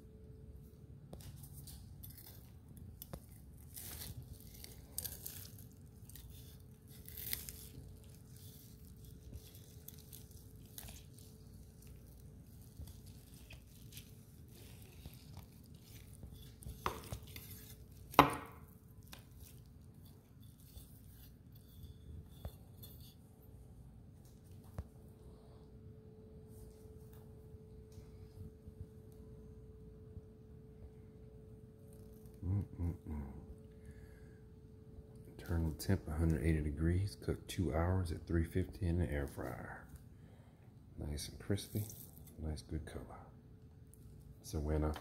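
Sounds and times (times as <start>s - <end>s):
knife slicing crisp crust: 1.4s - 23.2s.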